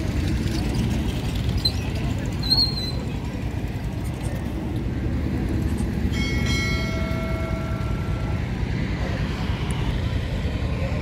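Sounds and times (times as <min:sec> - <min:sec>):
clear ringing tone: 0:06.1 - 0:08.4.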